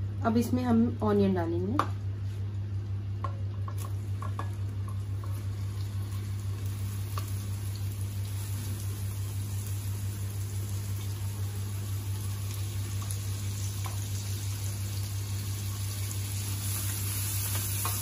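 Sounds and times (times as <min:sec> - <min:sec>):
steady low hum: 0:00.0 - 0:18.0
onion sizzling in oil: 0:03.6 - 0:18.0.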